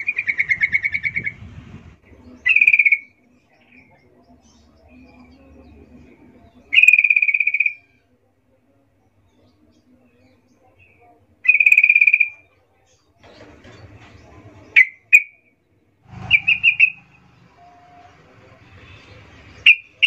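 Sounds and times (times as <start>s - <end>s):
bulbul calling: 0.0s - 1.5s, 2.1s - 8.0s, 10.8s - 12.6s, 14.7s - 15.5s, 16.1s - 18.0s, 18.6s - 20.0s.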